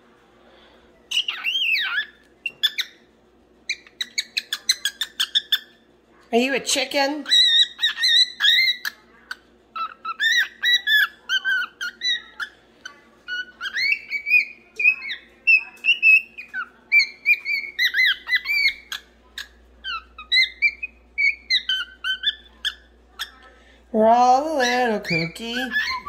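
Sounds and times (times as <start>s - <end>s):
cockatiel whistling: 13.3s - 19.0s.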